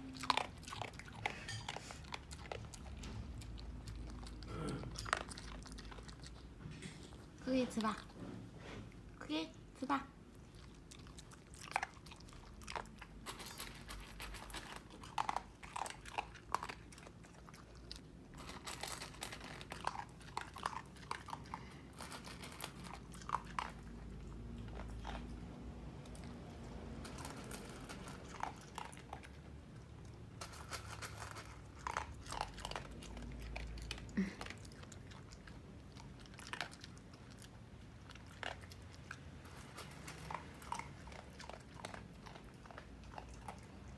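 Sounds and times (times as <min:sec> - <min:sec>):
dog chewing and crunching: 0:00.0 - 0:08.2, 0:10.2 - 0:43.9.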